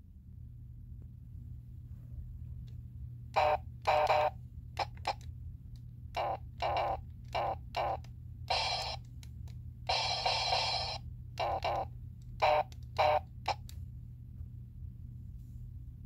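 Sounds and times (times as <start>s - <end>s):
toy electronic sound effects: 3.4s - 5.2s, 6.2s - 9.1s, 9.9s - 13.6s.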